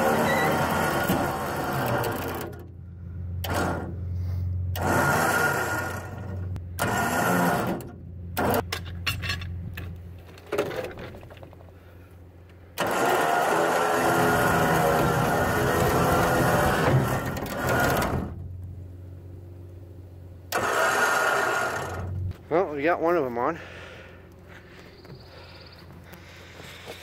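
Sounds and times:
electric winch running: 0.0s - 2.7s, 4.7s - 8.6s, 12.8s - 18.4s, 20.5s - 22.2s
truck engine running: 0.0s - 10.5s, 11.2s - 27.0s
log dragging across wooden deck: 10.0s - 18.4s, 23.6s - 27.0s.

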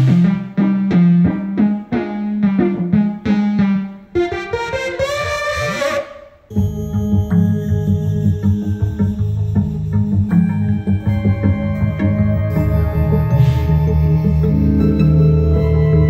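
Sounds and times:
repeated low synth note: 0.0s - 16.0s
held synth sound: 1.9s - 16.0s
synth pitches sliding: 1.9s - 16.0s
synthesizer short struck notes: 4.2s - 16.0s.

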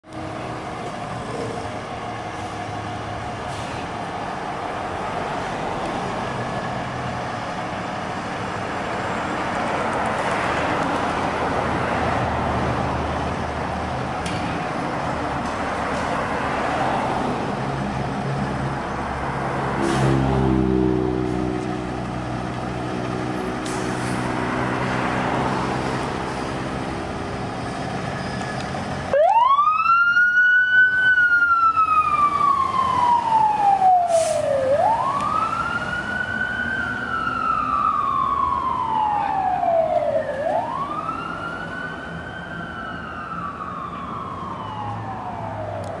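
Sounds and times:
fire engine pulling away: 0.1s - 46.0s
wailing siren: 29.1s - 46.0s.

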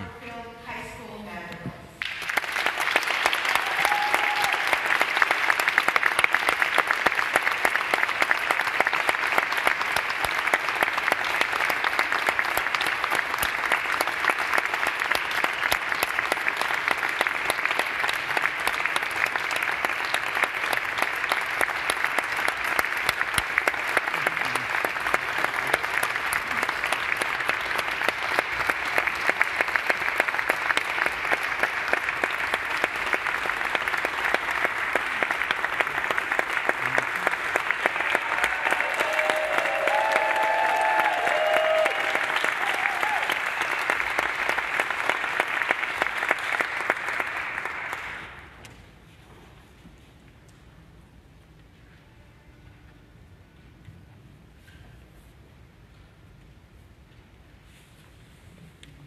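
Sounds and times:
audience applauding: 2.0s - 48.8s.

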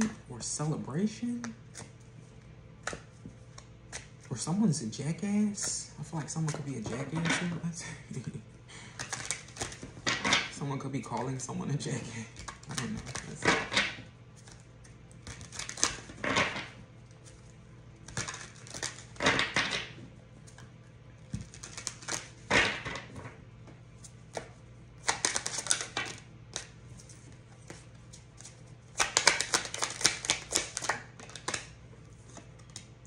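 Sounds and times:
playing cards being shuffled: 6.2s - 7.6s, 9.0s - 11.3s, 12.3s - 20.7s, 21.3s - 23.3s, 24.0s - 32.9s.

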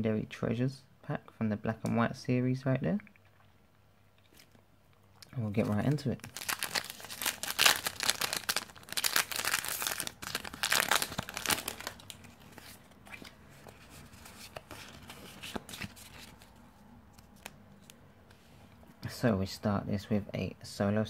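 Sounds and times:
foil wrapper tearing and crinkling: 6.2s - 12.6s.

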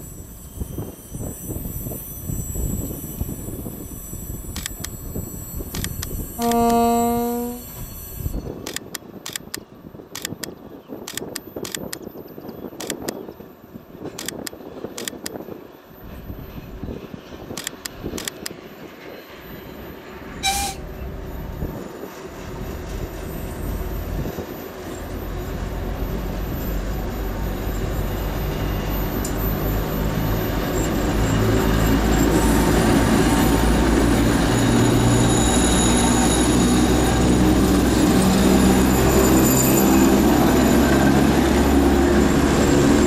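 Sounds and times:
diesel locomotive engine rumble: 0.0s - 43.0s
short high horn toot: 6.3s - 8.0s, 20.4s - 20.9s.

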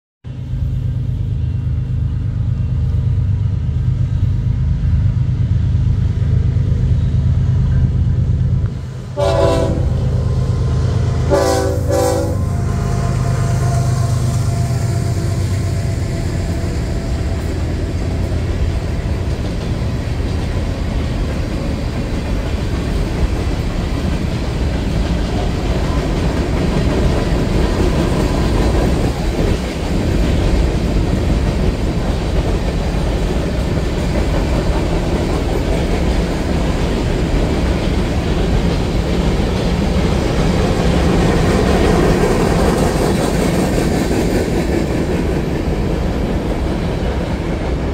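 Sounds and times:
locomotive engine drone: 0.3s - 47.9s
wheels rumbling on rails: 0.3s - 47.9s
train air horn blasts: 9.1s - 17.6s.

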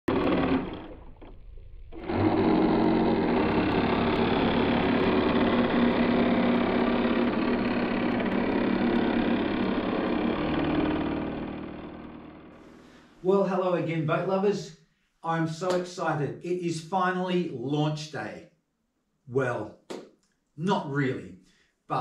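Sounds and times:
small electric motors whirring: 0.1s - 12.5s.

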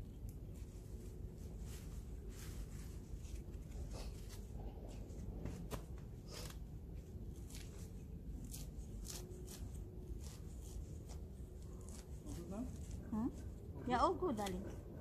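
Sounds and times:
plants rustling and crackling: 0.0s - 14.8s.

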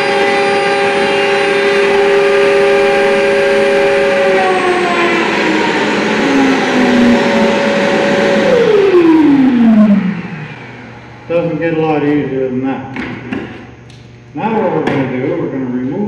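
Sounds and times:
router whining: 0.0s - 12.3s
dust extractor running: 0.0s - 16.0s.

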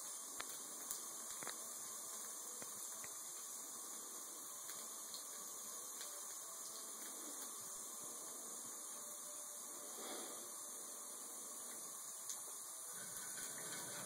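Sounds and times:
water trickling from faucet: 0.0s - 9.8s, 10.5s - 14.0s.

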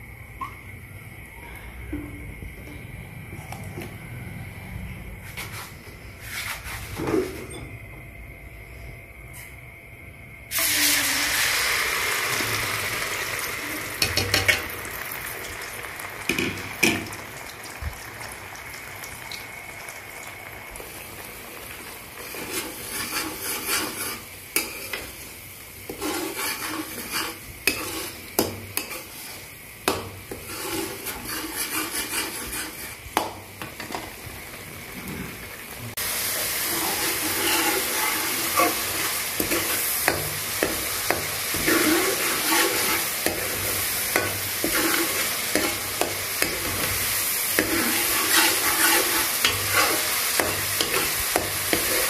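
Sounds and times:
onion paste sizzling in oil: 10.5s - 52.0s
metal spoon scraping pan: 22.2s - 25.2s, 25.9s - 29.5s, 30.3s - 33.0s, 36.7s - 52.0s.

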